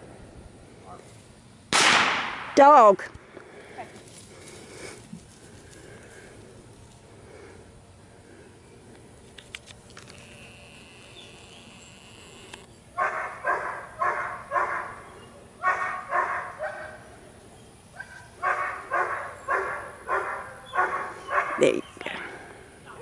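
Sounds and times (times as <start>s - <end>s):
dog barking: 13.0s - 15.0s, 15.6s - 17.0s, 18.0s - 21.7s.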